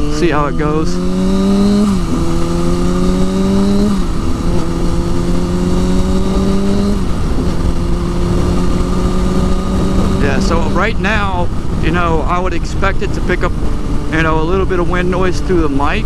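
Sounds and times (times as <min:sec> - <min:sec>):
motorcycle engine shifting gears: 0:00.0 - 0:16.0
wind and road noise: 0:00.0 - 0:16.0.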